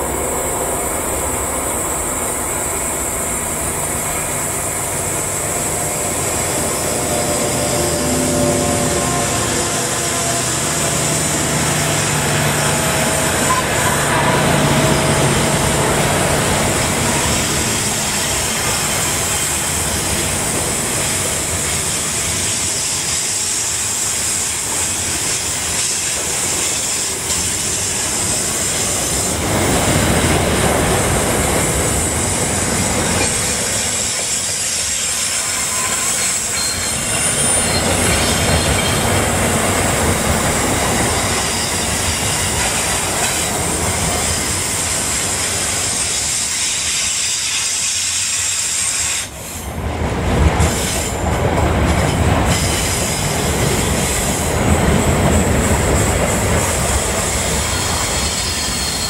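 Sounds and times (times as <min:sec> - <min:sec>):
diesel locomotive humming: 0:00.0 - 0:59.0
train wheel rumble: 0:00.0 - 0:59.0
faint wheel squeal: 0:34.3 - 0:39.1, 0:57.4 - 0:59.0.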